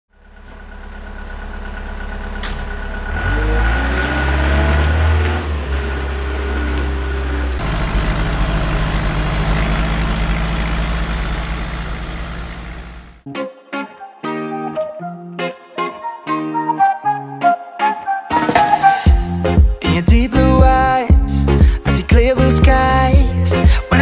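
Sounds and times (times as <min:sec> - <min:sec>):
engine running inside moving cab: 0:00.1 - 0:13.2
wheel loader engine revving: 0:00.3 - 0:13.2.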